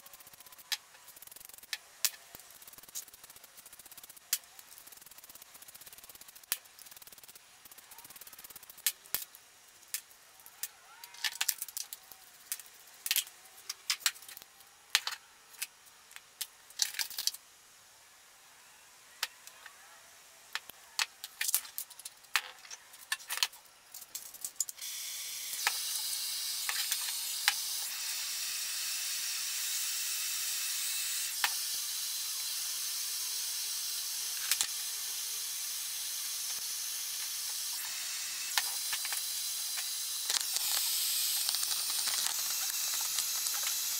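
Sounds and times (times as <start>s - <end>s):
propane torch hissing: 24.8s - 43.9s.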